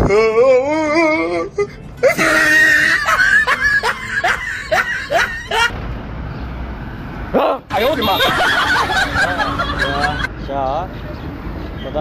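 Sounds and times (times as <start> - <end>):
man whining: 0.0 - 4.0
man laughing: 2.1 - 5.7, 7.8 - 10.3.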